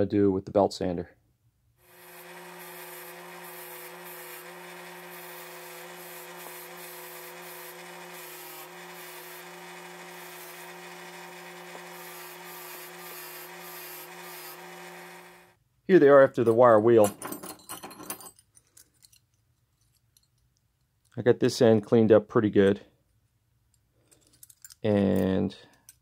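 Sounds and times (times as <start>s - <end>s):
bench grinder motor humming: 1.8s - 15.6s
wire brush scrubbing metal bits: 1.9s - 15.0s.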